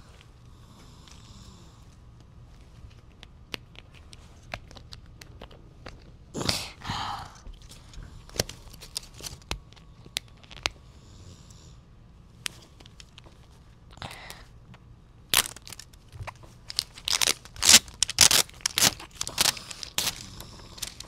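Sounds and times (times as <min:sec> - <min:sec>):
plastic rasp: 0:16.7 - 0:21.0.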